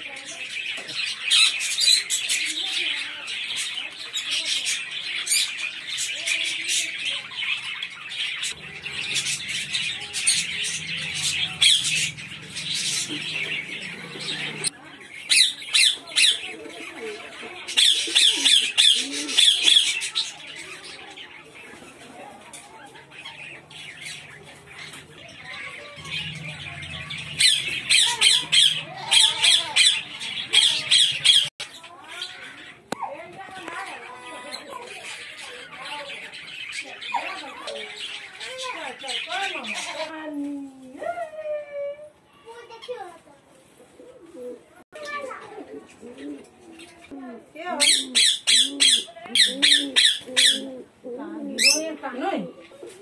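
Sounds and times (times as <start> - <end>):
small birds chattering: 0.0 - 40.9, 42.2 - 53.0
parrot squawking: 4.2 - 16.5, 17.6 - 20.6, 23.2 - 33.2, 47.8 - 50.7, 51.6 - 51.9.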